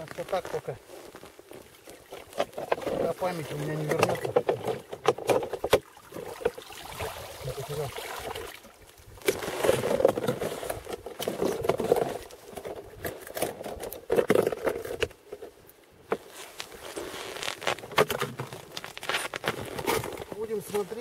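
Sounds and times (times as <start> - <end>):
tool crunching and scraping ice: 0.0 - 5.8, 9.2 - 15.1, 16.1 - 21.0.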